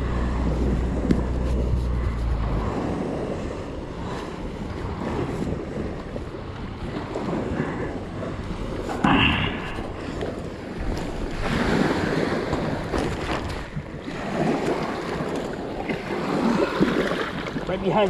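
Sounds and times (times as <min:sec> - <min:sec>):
waves lapping on gravel: 0:00.0 - 0:18.0
wind buffeting microphone: 0:00.0 - 0:18.0.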